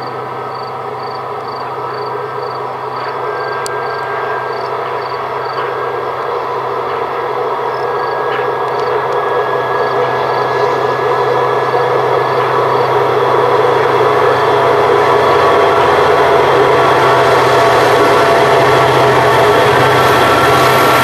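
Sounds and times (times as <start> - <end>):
diesel locomotive engine drone: 0.0 - 21.0
rumble of freight wagons: 0.0 - 21.0.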